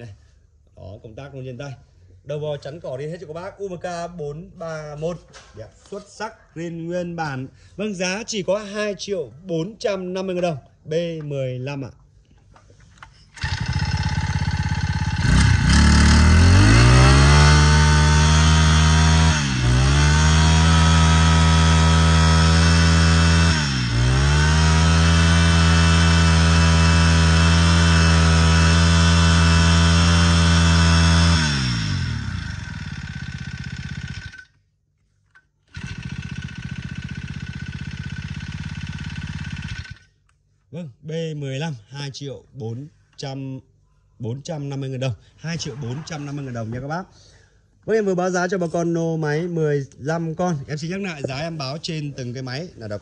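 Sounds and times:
brush cutter engine revving: 13.4s - 34.5s, 35.7s - 40.1s.

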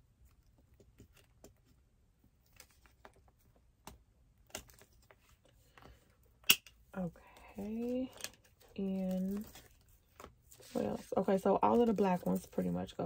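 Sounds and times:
light plastic rustling: 0.2s - 3.7s, 6.9s - 13.0s.

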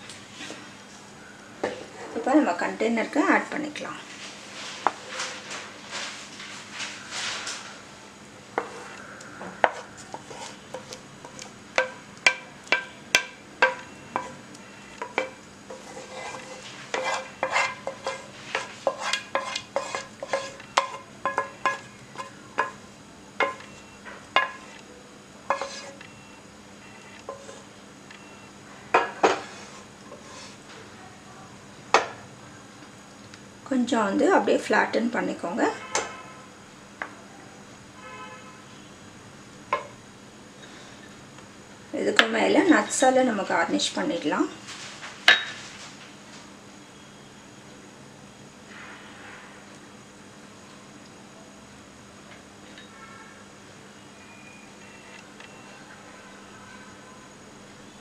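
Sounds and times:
spatula scraping metal pan: 9.6s - 11.9s, 13.6s - 22.8s, 25.5s - 26.0s, 27.0s - 27.7s, 29.2s - 30.6s.

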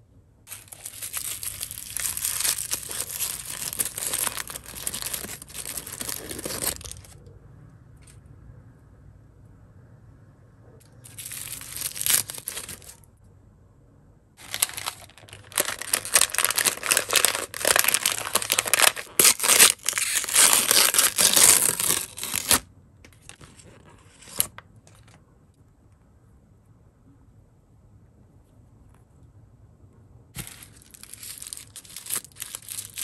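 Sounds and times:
plastic wrapper tearing and crinkling: 0.5s - 7.2s, 11.0s - 13.0s, 14.4s - 23.4s, 30.4s - 33.0s.

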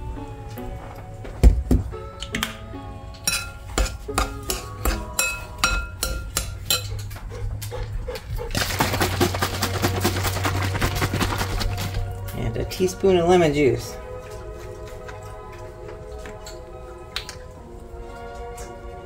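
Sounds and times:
soft background music: 0.0s - 8.4s, 9.1s - 19.0s
teaspoon clinking on glass bowl: 3.3s - 7.0s.

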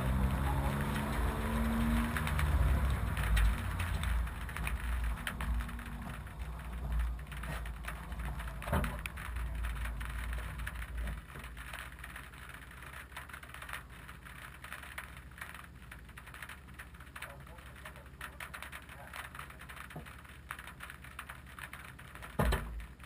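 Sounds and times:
car engine running low: 0.0s - 23.0s.

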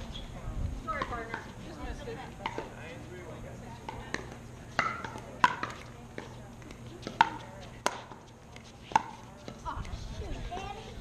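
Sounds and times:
paddles popping against ball: 3.9s - 9.9s.

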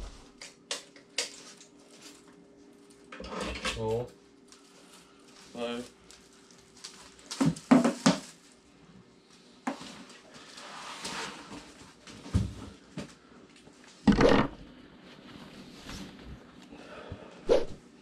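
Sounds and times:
heavy thump: 14.1s - 14.6s
objects knocking on table: 14.1s - 14.6s.

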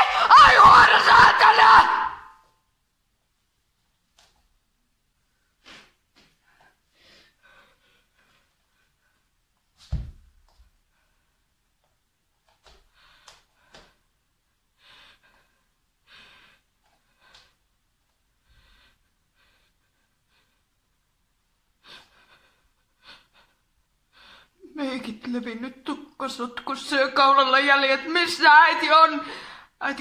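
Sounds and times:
thump: 9.8s - 10.3s
woman breathing and gasping: 29.2s - 29.8s.

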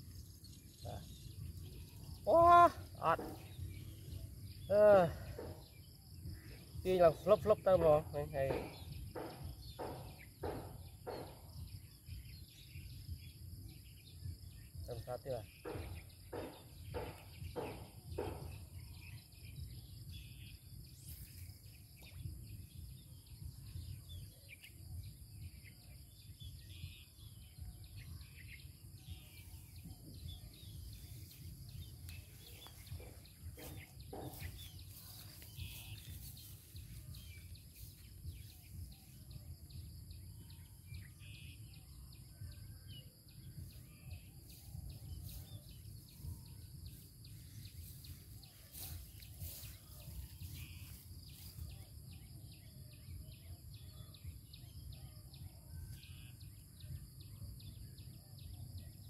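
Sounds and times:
birds chirping: 0.0s - 59.0s
faint knocks: 31.3s - 38.4s.

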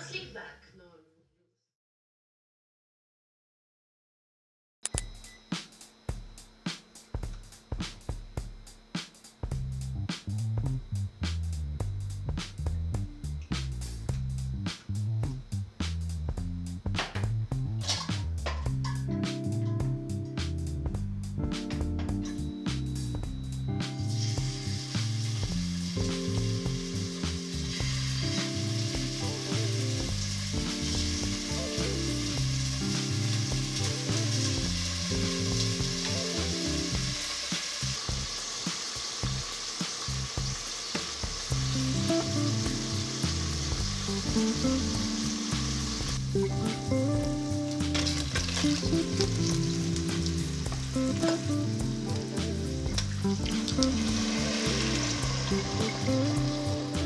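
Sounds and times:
soft background music: 16.8s - 40.6s, 41.4s - 57.0s
meat sizzling in a pot: 22.7s - 57.0s
water pouring into pot: 24.1s - 31.4s, 48.0s - 51.2s, 52.9s - 56.9s.

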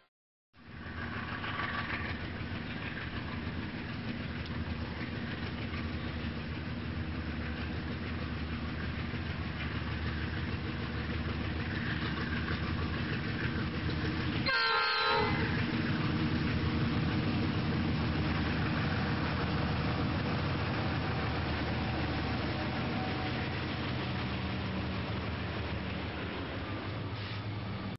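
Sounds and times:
diesel locomotive engine rumble: 0.6s - 27.9s
locomotive air horn blast: 14.4s - 15.7s.

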